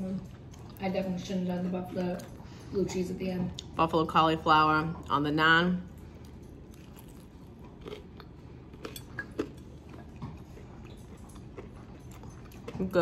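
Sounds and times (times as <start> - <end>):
person chewing food: 0.2 - 0.9, 5.9 - 13.0.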